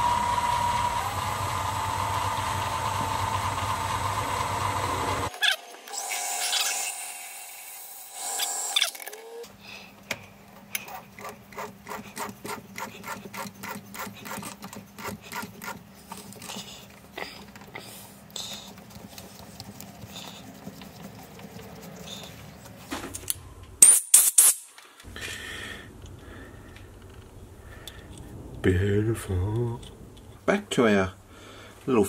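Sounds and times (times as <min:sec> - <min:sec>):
metal lathe humming: 0:00.0 - 0:08.8.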